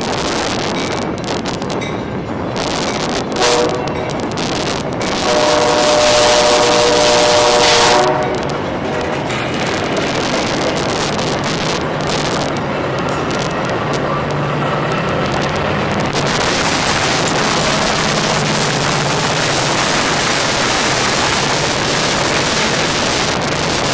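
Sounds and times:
train wheels rushing on rails: 0.0s - 23.9s
wind buffeting microphone: 0.0s - 23.9s.

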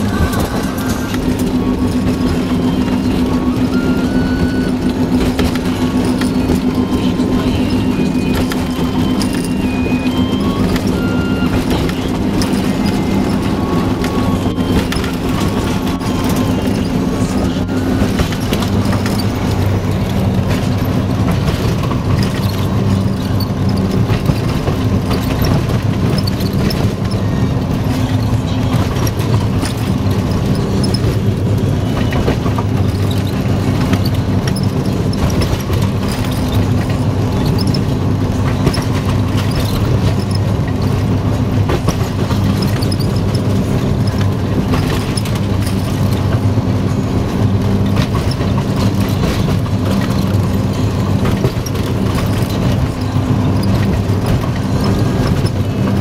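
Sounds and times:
clicks and rattles from train: 0.0s - 56.0s
diesel locomotive engine running: 0.0s - 56.0s.

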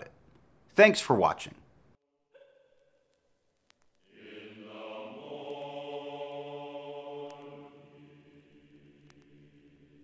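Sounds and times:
chant-like drone: 4.0s - 10.0s.

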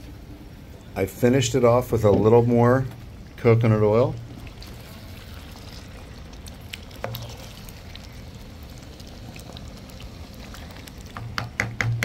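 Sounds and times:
food crackling in frying pan: 4.1s - 12.0s.

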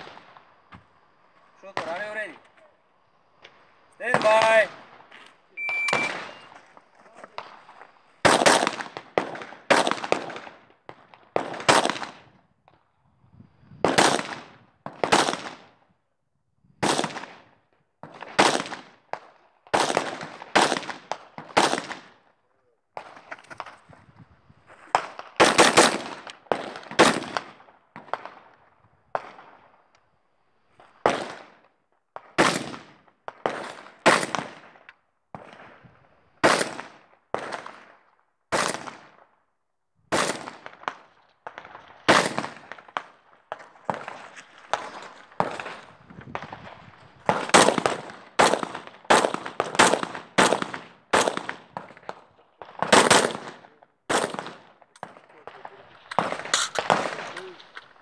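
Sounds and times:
gunshots with echo: 5.6s - 6.6s, 52.8s - 57.8s.

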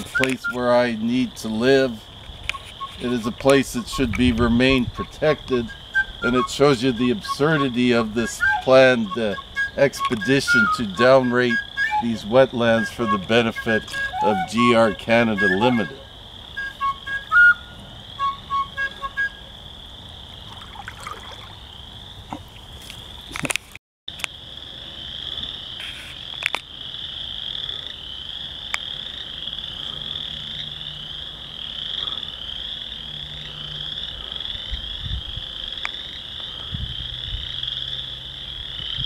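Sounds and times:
chorus of frogs trilling: 0.0s - 23.2s, 24.4s - 39.0s
short higher frog notes: 2.5s - 19.5s.

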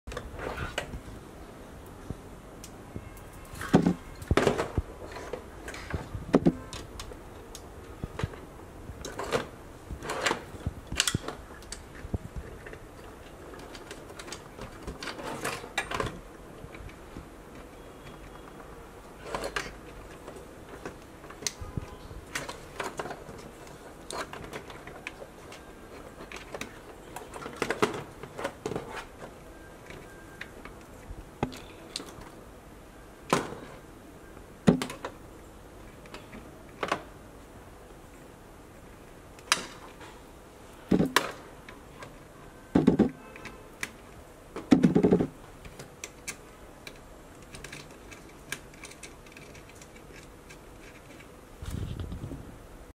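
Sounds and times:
plastic connectors clicking: 10.8s - 18.6s, 42.8s - 51.3s.

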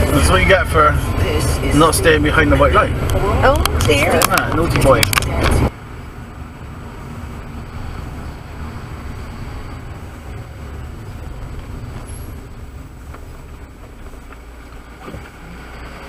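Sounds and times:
car engine and tyre noise: 0.0s - 16.0s.

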